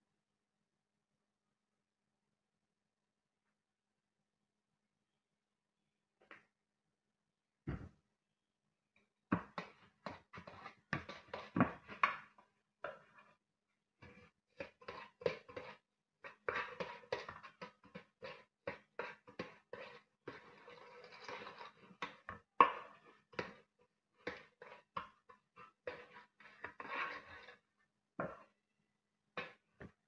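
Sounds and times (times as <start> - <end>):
pastry brush tapping and scraping metal: 9.4 - 13.3, 14.0 - 28.5.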